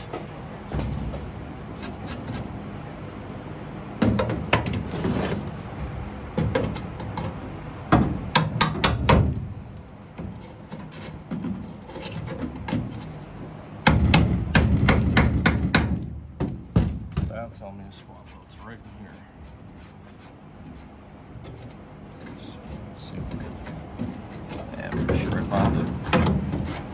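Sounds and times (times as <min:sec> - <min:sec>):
pry bar knocking on sheet metal: 0:07.9 - 0:09.4, 0:13.8 - 0:17.3.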